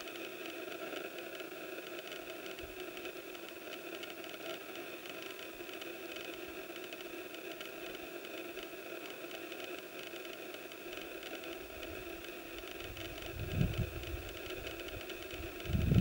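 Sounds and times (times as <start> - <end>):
wind buffeting microphone: 12.8 - 16.0.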